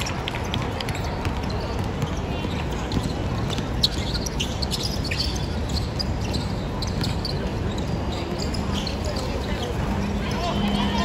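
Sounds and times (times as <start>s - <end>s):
sneaker squeaks: 0.0s - 11.0s
basketball bouncing: 0.5s - 4.1s
low hall hum: 4.6s - 11.0s.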